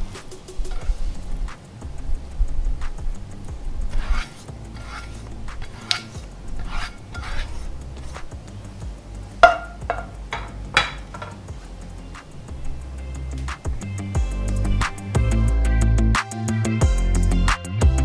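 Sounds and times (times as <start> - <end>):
soft background music: 0.0 - 18.0
spatula scraping pan: 0.6 - 1.4, 3.8 - 8.5, 9.4 - 11.6.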